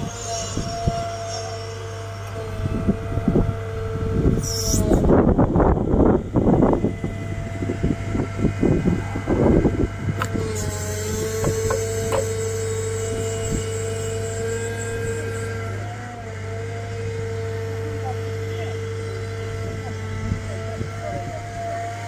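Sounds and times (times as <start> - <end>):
excavator running: 0.0 - 22.0
knocks: 11.4 - 12.3.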